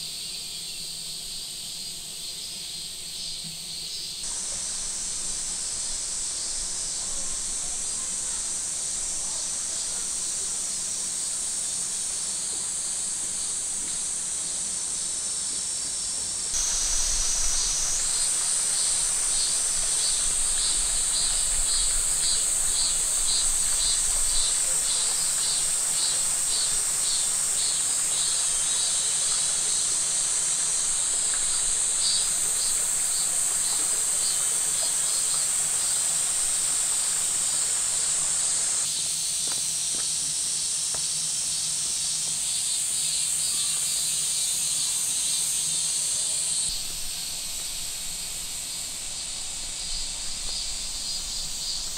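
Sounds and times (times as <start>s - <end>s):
fast pulsing insect call: 0.0s - 51.9s
high-pitched insect chorus: 0.0s - 51.9s.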